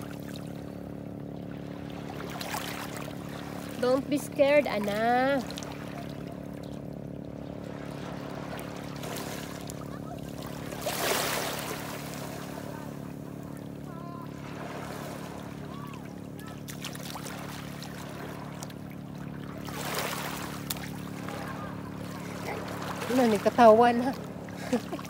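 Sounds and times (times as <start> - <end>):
steady low hum: 0.0 - 25.0
water splashing and sloshing: 0.0 - 25.0
loud splash: 10.4 - 12.6.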